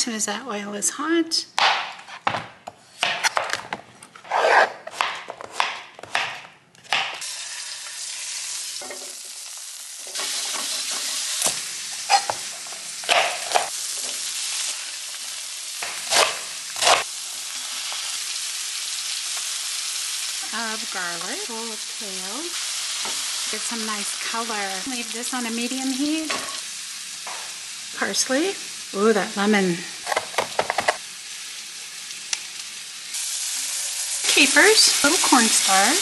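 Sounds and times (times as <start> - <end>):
knife chopping on plastic board: 4.9 - 7.2
vegetables sizzling in oil: 7.2 - 36.0.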